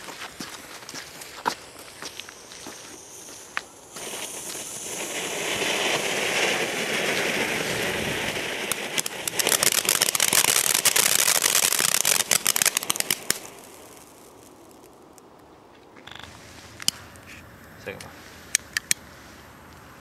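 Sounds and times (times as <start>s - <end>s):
firework crackling: 0.6s - 15.4s
firework fountain hissing: 1.3s - 15.2s.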